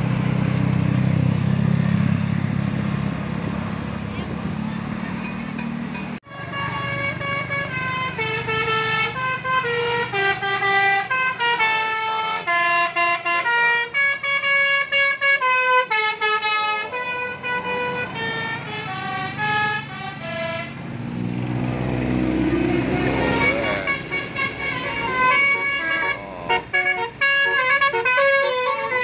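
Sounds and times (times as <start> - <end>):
bus engine running: 0.0 - 29.0
traffic: 0.0 - 29.0
bus musical horn melody: 6.2 - 20.8, 22.6 - 29.0.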